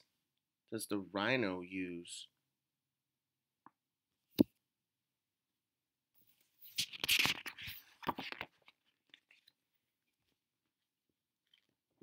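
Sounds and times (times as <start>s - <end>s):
paper page rustling: 6.4s - 9.6s.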